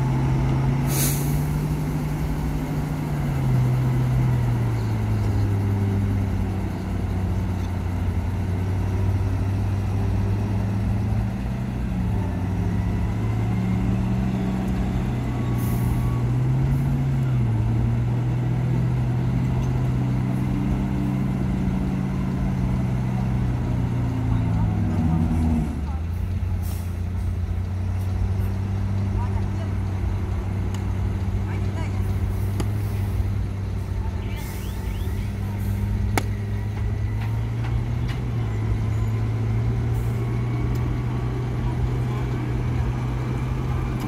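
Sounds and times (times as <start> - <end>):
dump truck engines running: 0.0 - 44.0
air hiss: 0.9 - 1.5.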